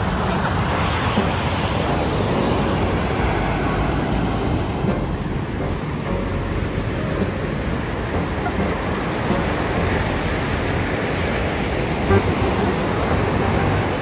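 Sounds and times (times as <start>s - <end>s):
low rumble: 0.0s - 14.0s
ocean surf breaking: 0.0s - 14.0s.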